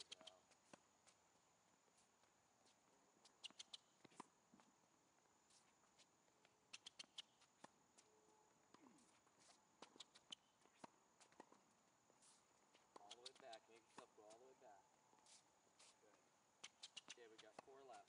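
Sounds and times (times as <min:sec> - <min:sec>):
footsteps on court: 0:04.0 - 0:04.7, 0:05.5 - 0:14.6, 0:15.2 - 0:18.0.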